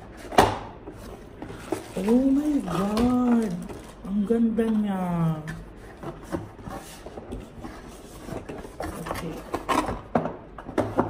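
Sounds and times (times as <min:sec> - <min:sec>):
cardboard rubbing and scraping: 0:05.8 - 0:09.7.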